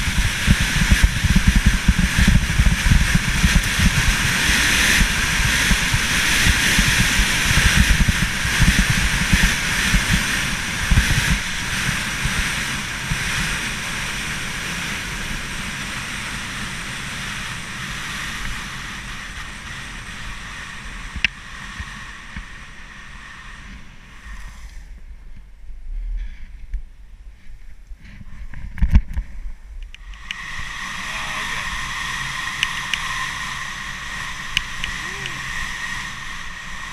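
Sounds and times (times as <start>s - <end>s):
wind buffeting microphone: 0.0s - 21.8s
skis running over snow: 0.0s - 22.1s.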